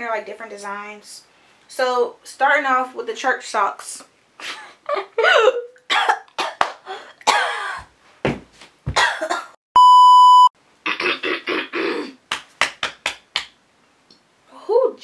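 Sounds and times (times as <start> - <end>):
woman coughing: 5.2 - 6.6, 7.2 - 7.9, 9.0 - 9.6
electronic test-tone beep: 9.8 - 10.5.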